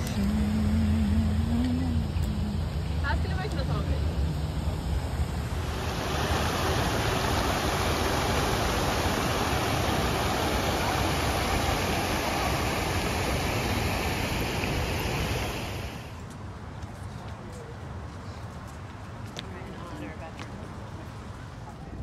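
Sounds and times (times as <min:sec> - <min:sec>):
fountain water splashing into pool: 0:05.4 - 0:16.2.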